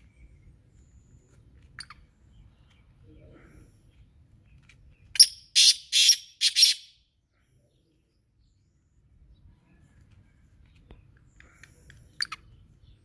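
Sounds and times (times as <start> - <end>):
francolin calling: 5.2 - 7.0.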